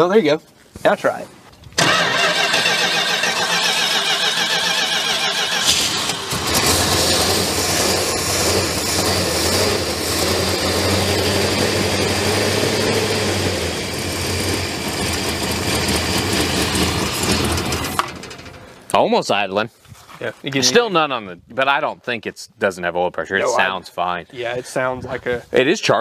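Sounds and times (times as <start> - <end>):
car engine rough idle: 1.8 - 18.8
car engine cranking on starter: 1.8 - 18.9.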